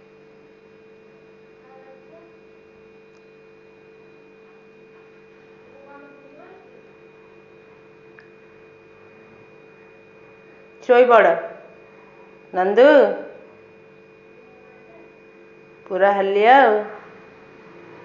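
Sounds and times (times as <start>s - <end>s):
steady electrical hum: 0.0s - 18.0s.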